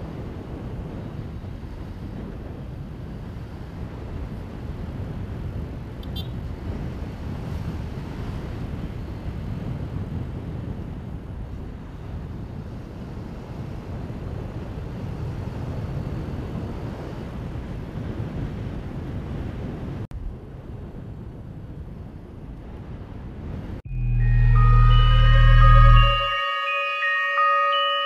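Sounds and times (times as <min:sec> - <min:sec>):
wind and road noise rushing: 0:00.0 - 0:28.0
music: 0:23.9 - 0:27.9.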